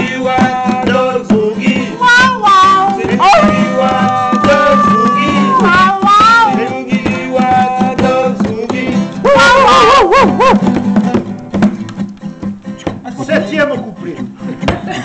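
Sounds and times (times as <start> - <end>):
man singing wordless sliding notes: 0.0 - 9.8
acoustic guitar strummed: 0.0 - 15.0.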